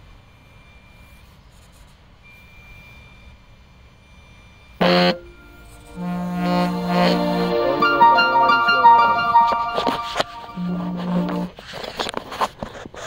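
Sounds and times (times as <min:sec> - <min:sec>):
thin high electric whine: 0:04.8 - 0:09.1, 0:09.8 - 0:11.5
smartphone alarm tone: 0:04.8 - 0:11.5.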